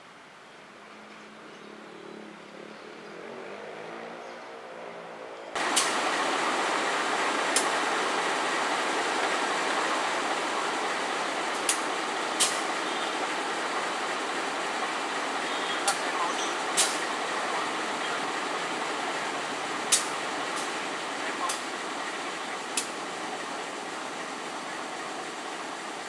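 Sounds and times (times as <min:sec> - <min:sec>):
low train engine hum: 0:05.2 - 0:26.0
water jet spraying hiss: 0:05.6 - 0:26.0.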